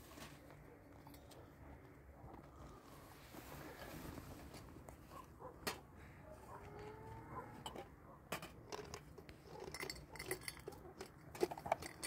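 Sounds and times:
small hard objects clinking: 7.6 - 12.0.

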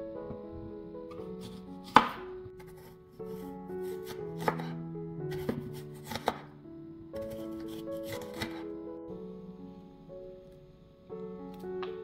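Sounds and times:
soft piano-like music: 0.0 - 12.0
knife cutting onion on wooden board: 1.4 - 3.0, 3.8 - 6.5, 7.2 - 8.6.

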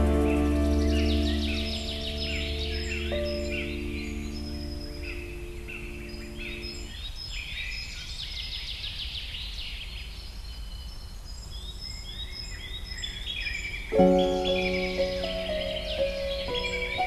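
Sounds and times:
sustained music chord: 0.0 - 6.9, 14.0 - 17.0
songbirds singing: 0.0 - 17.0.

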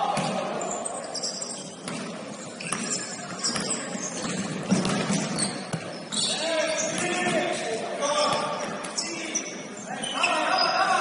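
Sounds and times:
sneakers squeaking on hardwood: 0.0 - 10.8
basketball bouncing: 1.8 - 5.9.

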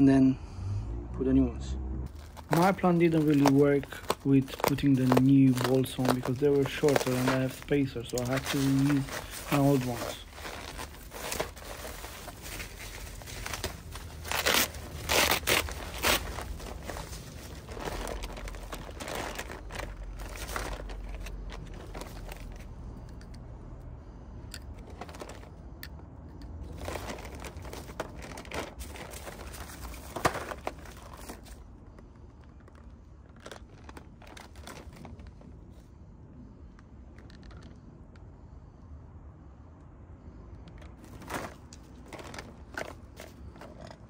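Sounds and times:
bubble wrap and plastic crinkling: 2.1 - 23.3, 24.6 - 25.6, 26.6 - 32.0, 32.6 - 35.8, 41.0 - 44.0.

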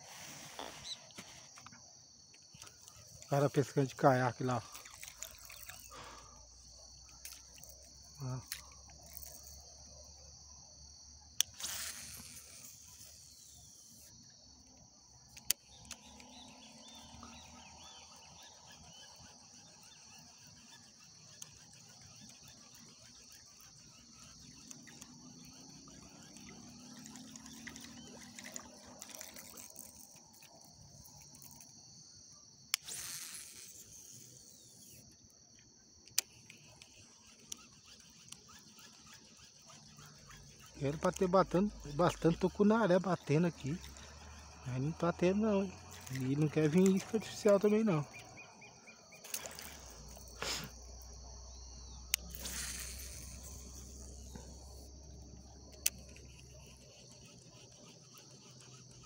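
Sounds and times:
insects chirring: 0.0 - 59.0
sharp clicks: 14.7 - 16.3.

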